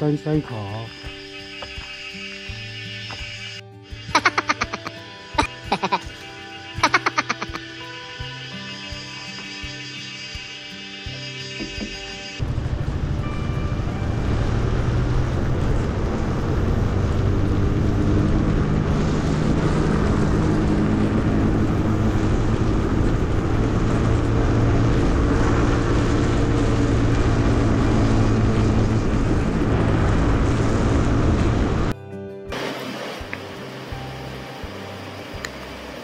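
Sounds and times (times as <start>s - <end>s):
vehicle engine drone: 5.6s - 8.3s, 10.6s - 32.0s
road noise rushing: 12.4s - 31.9s.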